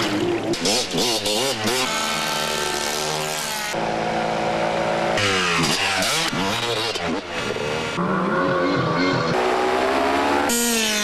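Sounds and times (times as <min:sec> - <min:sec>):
small two-stroke engines revving: 0:00.0 - 0:11.0.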